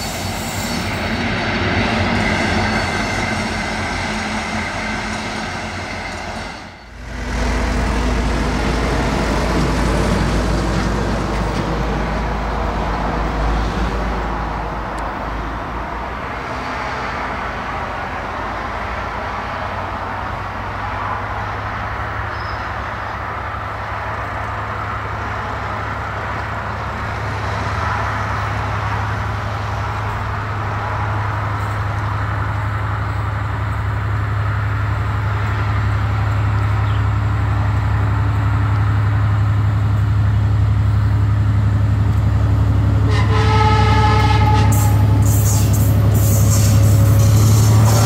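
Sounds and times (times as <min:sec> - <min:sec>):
diesel locomotive engine drone: 0:00.0 - 0:48.0
locomotive horn chord: 0:42.9 - 0:45.3.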